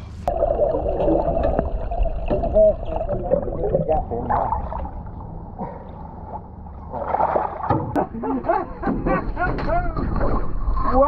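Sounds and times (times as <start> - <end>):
water gurgling and bubbling: 0.2 - 7.7.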